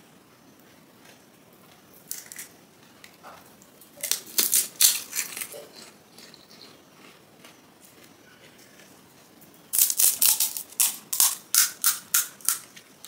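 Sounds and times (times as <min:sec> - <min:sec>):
crisp shells crunching: 0:04.0 - 0:08.1, 0:09.7 - 0:12.8.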